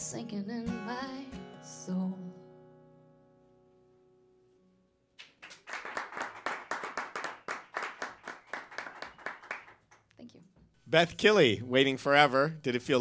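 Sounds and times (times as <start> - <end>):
audience clapping: 5.2 - 10.2.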